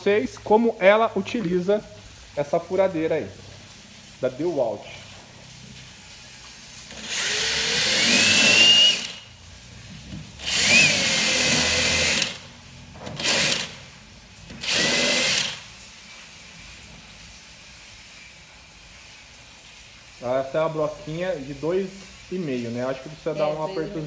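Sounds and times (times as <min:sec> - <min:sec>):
drill motor whining into wood: 0:06.9 - 0:09.2, 0:10.4 - 0:12.4, 0:13.0 - 0:13.8, 0:14.5 - 0:15.6.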